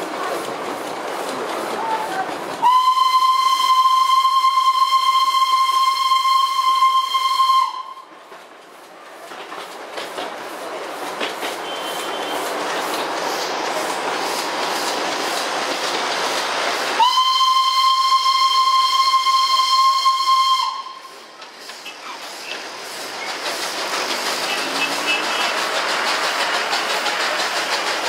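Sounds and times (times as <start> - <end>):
train running: 0.0 - 28.0
steam locomotive whistle: 2.6 - 8.1, 11.6 - 12.5, 17.0 - 22.6, 24.4 - 25.7.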